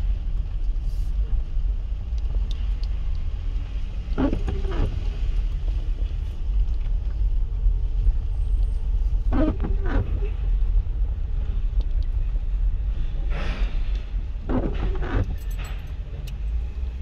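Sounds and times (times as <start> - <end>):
car engine rumble: 0.0 - 17.0
road noise on wet road: 0.0 - 17.0
squeaky strokes: 9.3 - 10.4.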